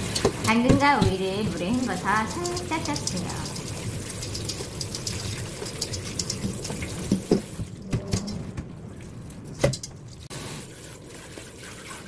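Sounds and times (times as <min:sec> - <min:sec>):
tap water running into colander: 0:00.0 - 0:07.7.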